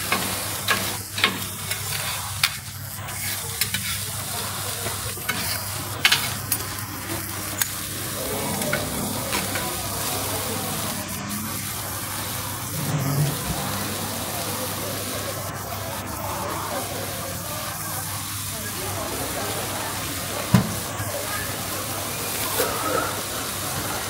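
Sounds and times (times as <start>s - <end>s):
clicks and scrapes on griddle: 0.0s - 9.8s
food sizzling on a griddle: 0.0s - 24.0s.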